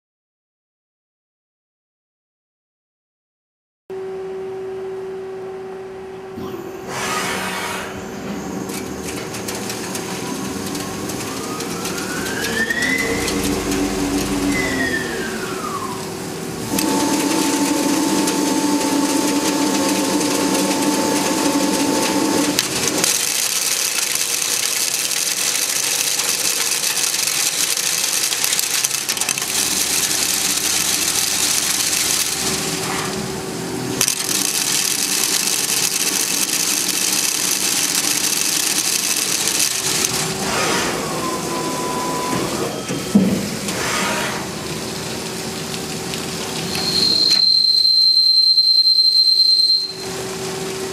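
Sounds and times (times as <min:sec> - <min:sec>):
lathe spindle whine: 0:10.3 - 0:33.3, 0:34.0 - 0:42.4.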